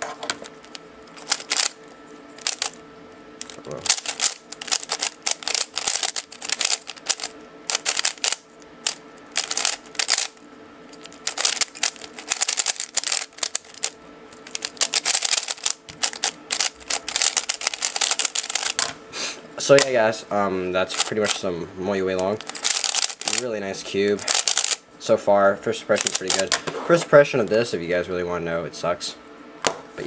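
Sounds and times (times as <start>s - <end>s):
rapid plastic clacking of cube: 1.2s - 1.8s, 2.4s - 2.8s, 3.4s - 10.4s, 11.0s - 18.9s, 20.9s - 21.4s, 22.4s - 23.4s, 24.2s - 24.8s, 26.0s - 26.6s.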